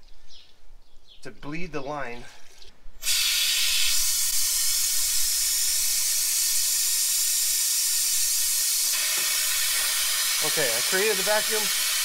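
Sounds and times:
compressed air hissing: 0:03.0 - 0:12.0.

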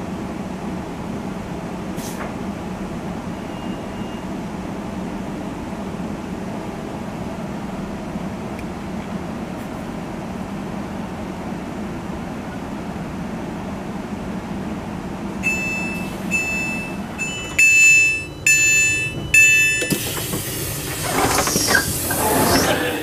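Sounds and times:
train interior low hum: 0:00.0 - 0:23.0
electronic door alert beeps: 0:15.4 - 0:20.0
sliding door opening rush: 0:19.8 - 0:23.0.

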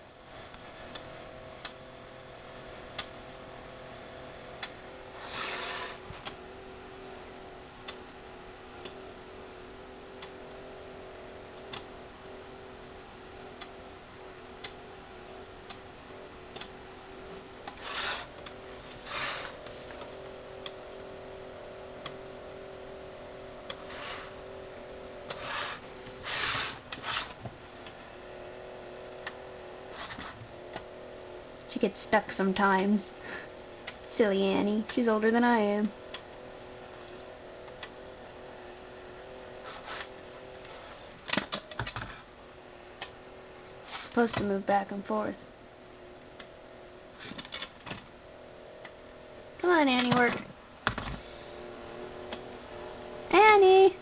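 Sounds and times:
mechanism ticking: 0:00.5 - 0:01.8, 0:02.9 - 0:03.2, 0:04.5 - 0:04.8, 0:07.8 - 0:08.1, 0:10.1 - 0:10.4, 0:14.6 - 0:14.8, 0:15.6 - 0:16.8, 0:33.8 - 0:38.0
toy motor humming: 0:04.4 - 0:06.5, 0:14.5 - 0:22.3, 0:23.0 - 0:31.7
short rasping bursts: 0:17.8 - 0:18.3.

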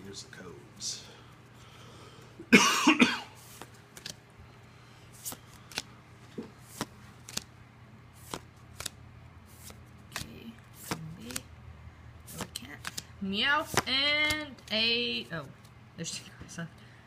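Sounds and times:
cards flicking with crisp snaps: 0:03.4 - 0:04.2, 0:05.2 - 0:07.5, 0:08.2 - 0:11.5, 0:12.3 - 0:14.8
cards rustling: 0:03.4 - 0:04.3, 0:05.0 - 0:07.5, 0:08.1 - 0:11.5, 0:12.2 - 0:15.7.

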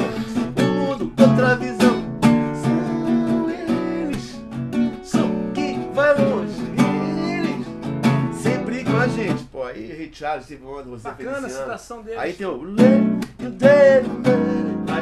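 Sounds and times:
acoustic guitar strumming: 0:00.0 - 0:09.5, 0:12.7 - 0:15.0
man singing wordless phrases: 0:00.0 - 0:15.0.

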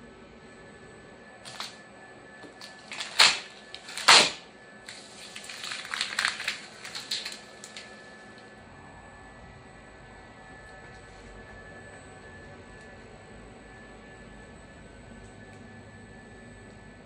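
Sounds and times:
plastic pieces scraping together: 0:01.5 - 0:01.8, 0:02.6 - 0:07.9.

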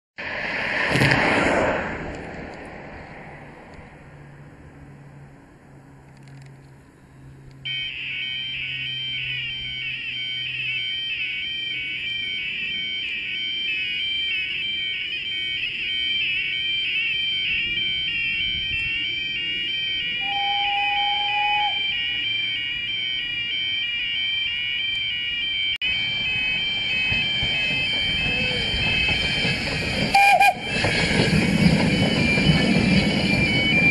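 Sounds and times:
brief steady tone: 0:07.5 - 0:30.7
level crossing alarm warbling: 0:07.6 - 0:30.9.

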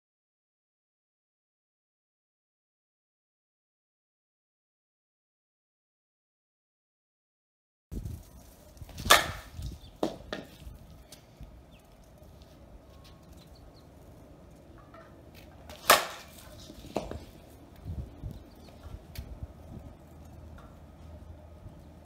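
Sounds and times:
bat hitting softball: 0:09.0 - 0:10.5, 0:15.6 - 0:17.3.

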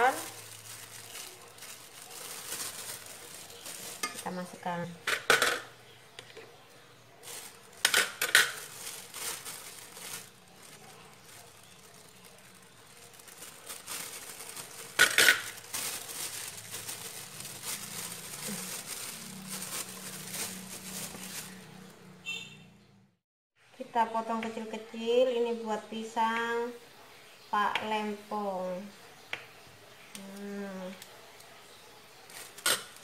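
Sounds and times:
plastic bag crinkling: 0:00.0 - 0:06.2, 0:07.1 - 0:22.0, 0:32.2 - 0:33.0.

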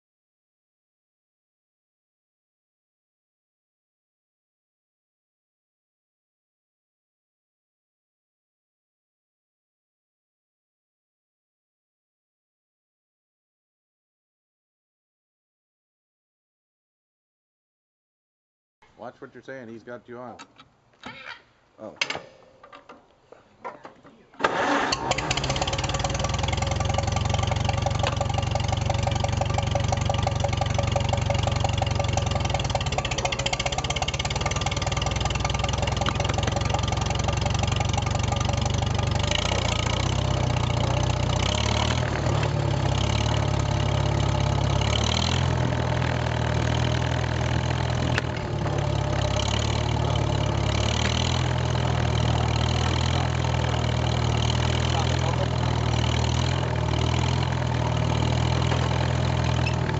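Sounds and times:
tractor engine running: 0:24.4 - 0:59.9.

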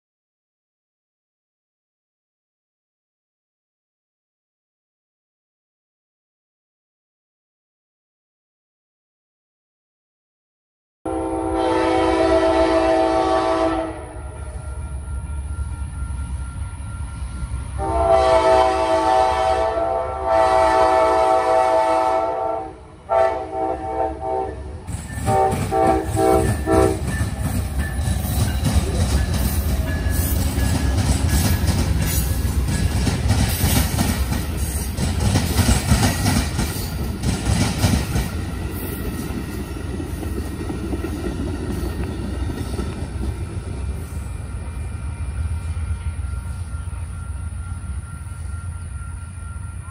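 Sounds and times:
train horn blasts: 0:11.1 - 0:14.7, 0:17.7 - 0:27.3
train rumbling past: 0:11.1 - 0:49.9
wheels clacking over rail joints: 0:24.9 - 0:43.9.

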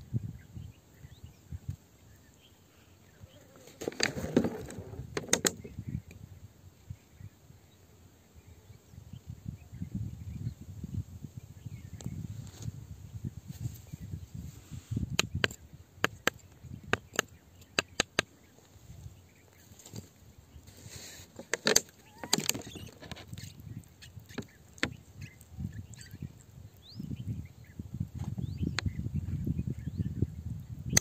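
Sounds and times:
tool scraping soil: 0:20.6 - 0:23.6.

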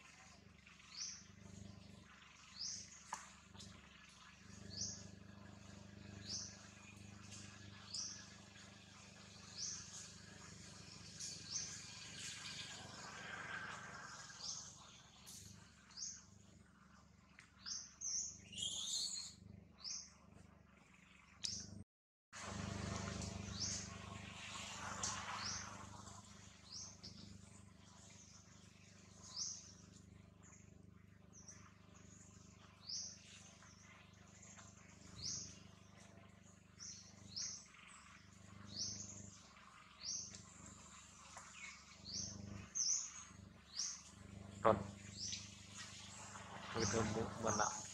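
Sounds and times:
faint outdoor background: 0:00.0 - 0:47.9
bird chirping: 0:17.6 - 0:21.8, 0:25.0 - 0:47.9.

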